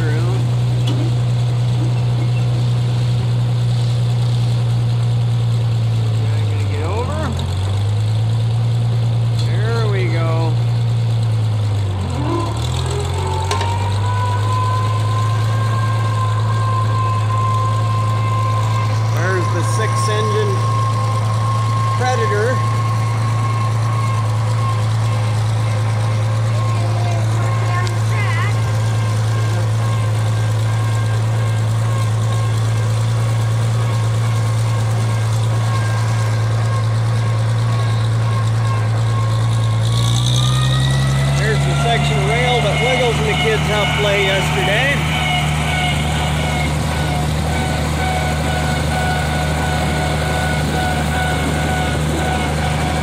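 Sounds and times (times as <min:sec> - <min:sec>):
tractor engine running: 0:00.0 - 0:53.0
steady high whine: 0:13.4 - 0:39.9.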